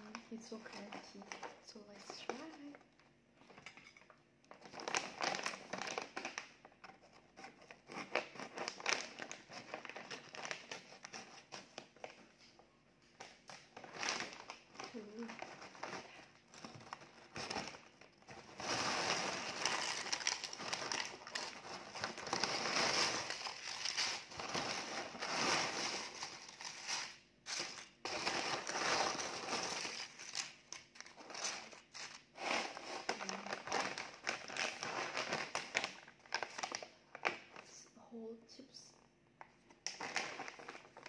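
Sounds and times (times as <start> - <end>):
chip bag crinkling: 4.5 - 6.5, 13.5 - 37.6, 39.9 - 41.0
chips rustling on wooden tray: 18.3 - 33.4.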